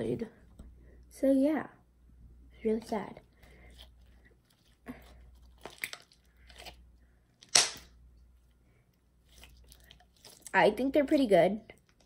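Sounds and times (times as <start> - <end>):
slime squelching and crackling: 2.6 - 7.9, 9.2 - 12.0.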